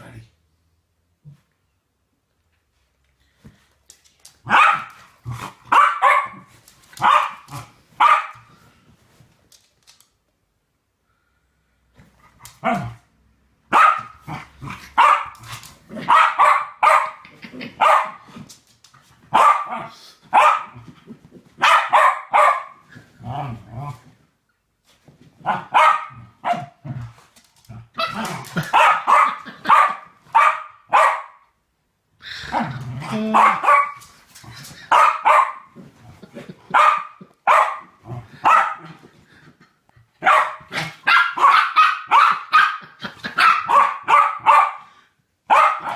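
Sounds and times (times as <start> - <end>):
dogs play-barking: 4.4 - 8.6, 13.7 - 18.4, 19.3 - 21.0, 21.6 - 23.9, 25.4 - 31.4, 32.8 - 39.1, 40.0 - 44.9, 45.5 - 45.9.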